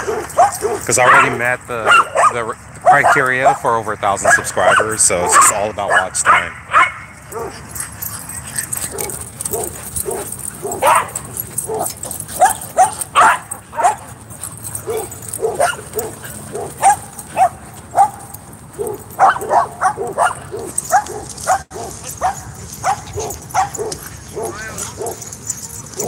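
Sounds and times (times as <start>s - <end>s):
dogs barking and yipping: 0.0s - 26.0s.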